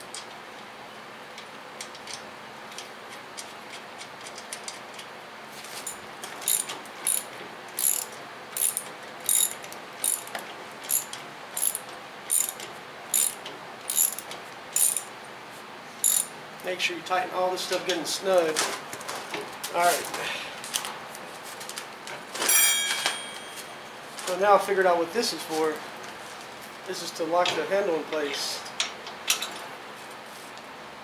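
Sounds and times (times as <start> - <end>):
ratchet wrench clicking: 6.4 - 15.1, 16.0 - 16.3.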